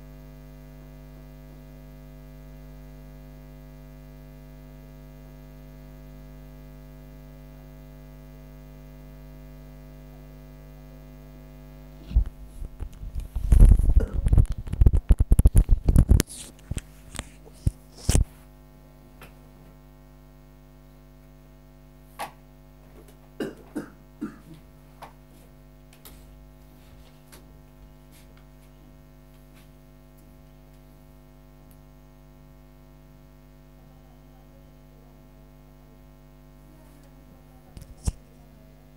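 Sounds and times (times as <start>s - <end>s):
electrical hum: 0.0s - 38.9s.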